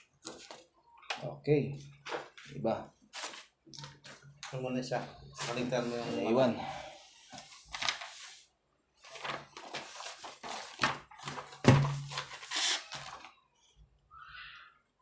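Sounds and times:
paper pages rustling: 0:00.0 - 0:01.2, 0:01.9 - 0:04.7, 0:05.4 - 0:06.1, 0:07.2 - 0:13.4.

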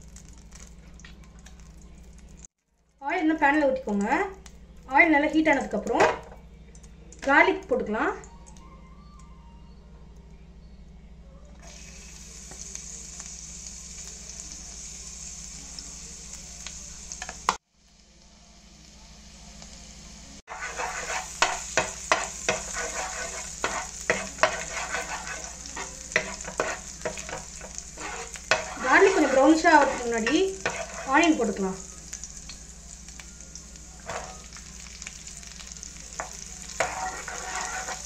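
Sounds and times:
garlic sizzling in oil: 0:00.0 - 0:02.5, 0:11.6 - 0:38.0
oil hissing in a pan: 0:11.6 - 0:38.0
spatula stirring: 0:20.5 - 0:31.6, 0:34.0 - 0:38.0.

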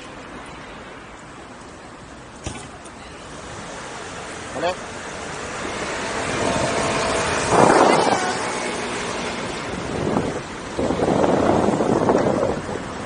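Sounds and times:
wind buffeting microphone: 0:05.7 - 0:13.0.

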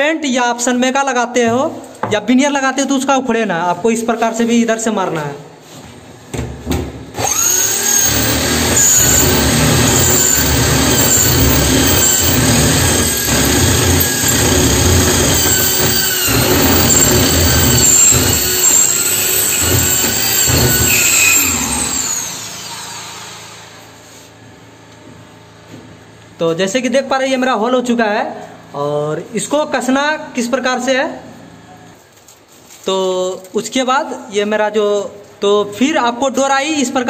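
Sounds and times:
electric drill boring through wood: 0:07.2 - 0:23.8.

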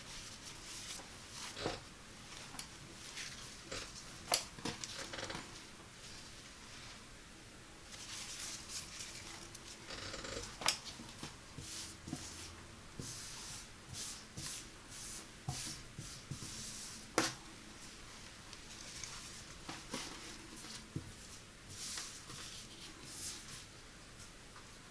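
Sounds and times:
fabric rustling: 0:07.9 - 0:09.8.

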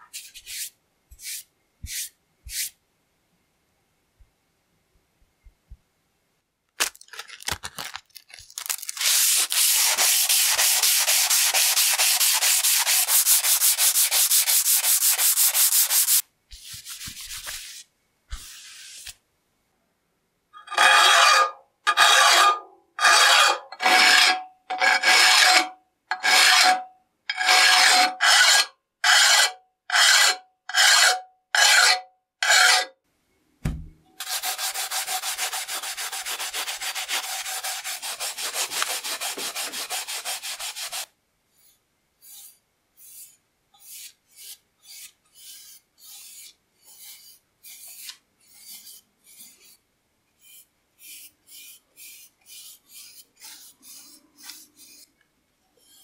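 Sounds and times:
squeaky sanding strokes: 0:09.0 - 0:16.2, 0:34.2 - 0:49.8, 0:50.4 - 0:55.1.

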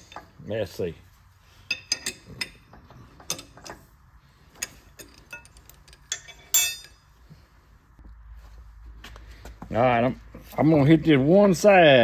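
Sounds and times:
metallic clicks and clinks: 0:04.6 - 0:07.0
ringing metal clink: 0:04.6 - 0:07.1.

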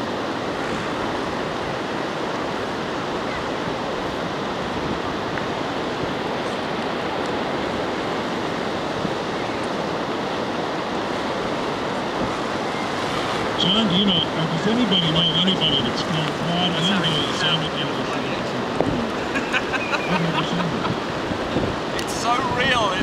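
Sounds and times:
surf on beach: 0:00.0 - 0:23.0
wind rushing: 0:15.3 - 0:23.0.

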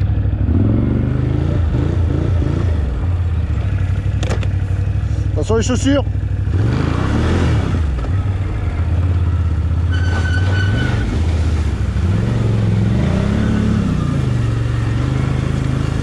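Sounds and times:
atv engine revving: 0:00.0 - 0:16.0
water splashing: 0:09.7 - 0:16.0
brief high squeal: 0:09.9 - 0:11.2.

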